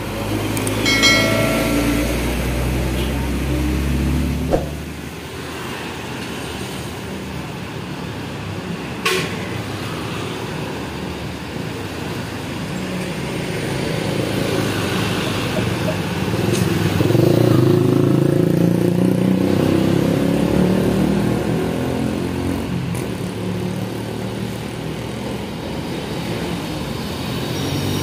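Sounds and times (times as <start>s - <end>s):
passing traffic: 0.0s - 28.0s
sharp knock: 4.5s - 4.9s.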